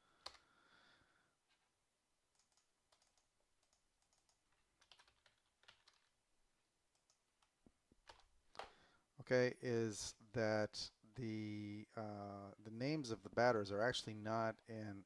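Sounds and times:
computer keyboard keystrokes: 0:02.4 - 0:06.1, 0:06.9 - 0:08.7.

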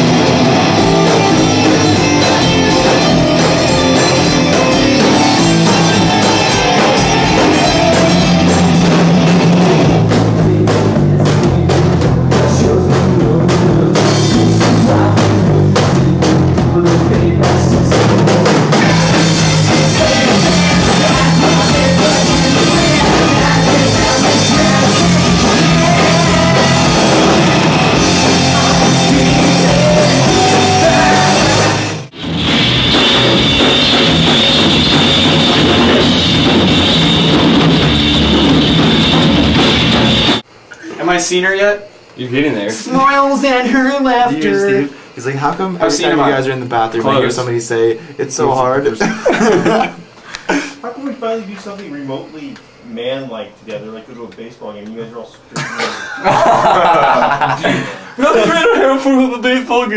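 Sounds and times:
loud rock music: 0:00.0 - 0:40.5.

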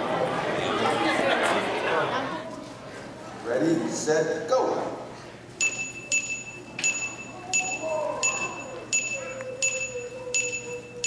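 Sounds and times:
faint voices murmuring: 0:00.0 - 0:04.1, 0:04.7 - 0:11.0
bright chime dinging: 0:05.6 - 0:11.0.

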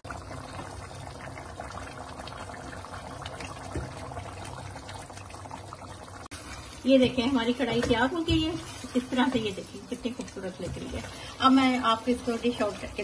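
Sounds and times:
food sizzling in a pan: 0:05.7 - 0:13.0.

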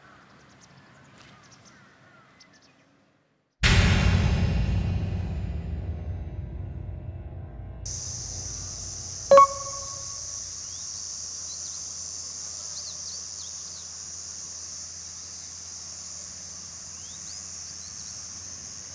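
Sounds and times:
insect chorus: 0:07.9 - 0:18.9
sharp ringing ding: 0:09.3 - 0:10.3
bird chirps: 0:09.3 - 0:11.8.

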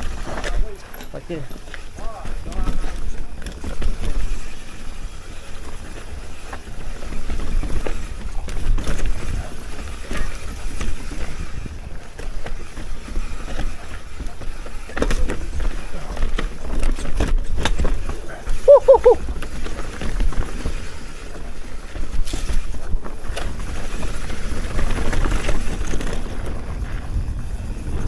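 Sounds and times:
tyres rolling on dirt and stones: 0:00.0 - 0:28.0
wind buffeting microphone: 0:22.1 - 0:28.0.

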